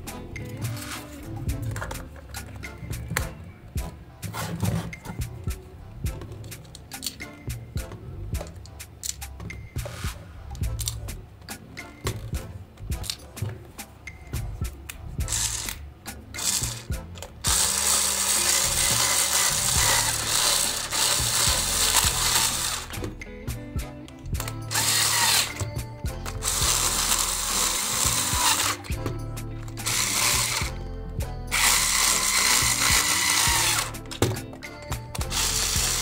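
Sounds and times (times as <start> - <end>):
cordless drill driving screw: 16.4 - 23.0, 24.7 - 29.0, 29.8 - 30.8, 31.5 - 34.2, 35.2 - 36.0.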